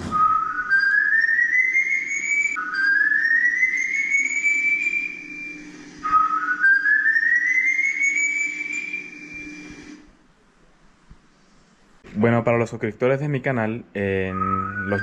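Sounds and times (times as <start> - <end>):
person whistling upward glides: 0.0 - 10.0, 14.3 - 15.0.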